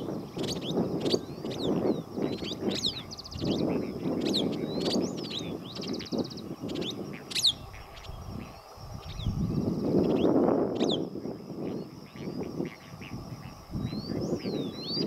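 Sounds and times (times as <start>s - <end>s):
bird trills: 0.0s - 9.3s
birds chirping: 0.0s - 15.0s
wind on microphone: 0.0s - 15.0s.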